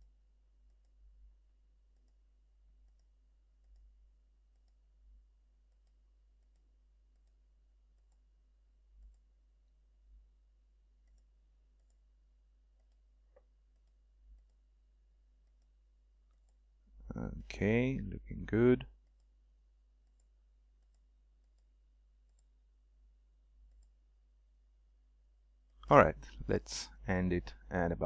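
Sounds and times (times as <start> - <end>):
soft computer mouse clicks: 2.8 - 3.9, 4.5 - 4.8, 5.7 - 8.3, 9.0 - 9.3, 11.0 - 12.0, 12.7 - 14.6, 20.0 - 22.6, 23.6 - 24.0.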